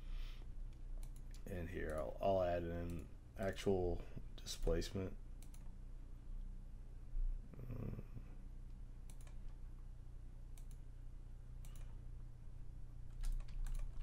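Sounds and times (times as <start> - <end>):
low electrical hum: 0.0 - 14.0
computer mouse clicks: 0.7 - 2.1, 5.4 - 5.7, 9.0 - 9.6, 10.5 - 10.8, 11.6 - 11.9, 13.1 - 14.0.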